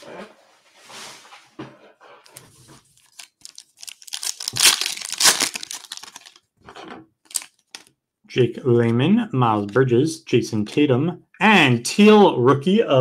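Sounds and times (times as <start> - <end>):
foil wrapper tearing and crinkling: 2.9 - 6.4, 7.3 - 7.9.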